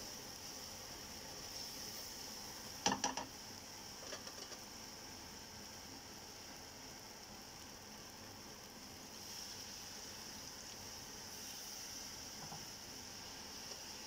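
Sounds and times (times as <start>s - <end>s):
faint steady hiss: 0.0s - 14.0s
spatula knocking on frying pan: 2.8s - 3.3s.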